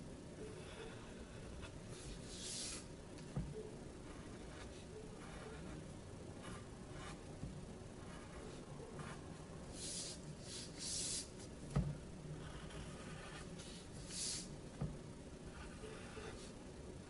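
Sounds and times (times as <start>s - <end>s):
pencil drawing on paper: 0.5s - 2.9s, 4.0s - 5.8s, 6.4s - 7.3s, 8.0s - 11.4s, 12.4s - 14.5s, 15.5s - 16.6s.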